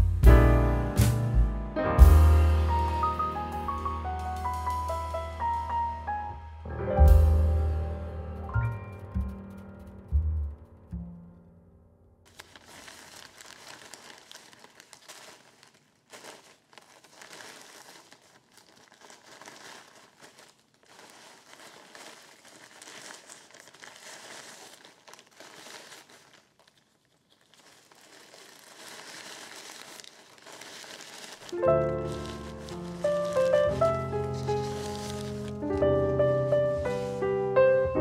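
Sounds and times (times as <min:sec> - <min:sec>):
plastic bags crinkling: 0:12.3 - 0:37.3.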